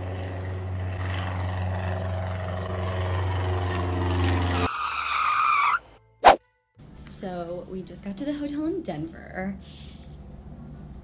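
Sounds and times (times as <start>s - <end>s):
jet airliner engine drone: 0.0s - 4.7s.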